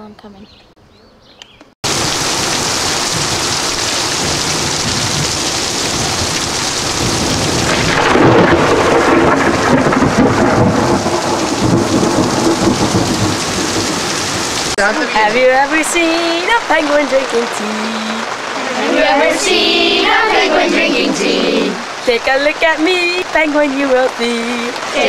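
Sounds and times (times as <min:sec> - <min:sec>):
thunder rumbling: 0:01.8 - 0:14.8
heavy rain pouring: 0:01.8 - 0:25.0.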